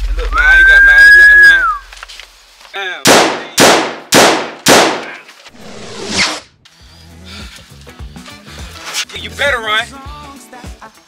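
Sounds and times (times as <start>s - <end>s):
echoing gunshots: 3.0s - 5.2s
rising whoosh: 5.5s - 6.6s.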